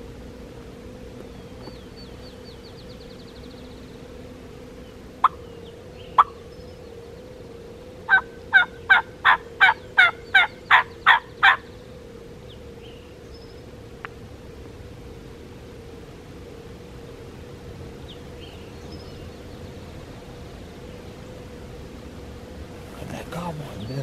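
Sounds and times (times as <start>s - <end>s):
turkey yelps: 8.1s - 11.6s.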